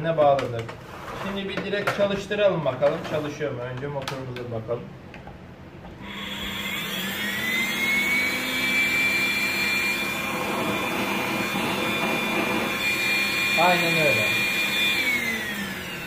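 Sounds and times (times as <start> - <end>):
vacuum cleaner motor whining: 6.0 - 16.0.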